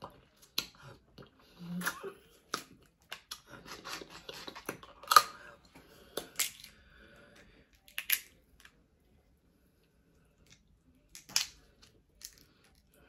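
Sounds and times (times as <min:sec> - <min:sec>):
crab shell cracking: 0:07.8 - 0:08.7, 0:10.4 - 0:12.6.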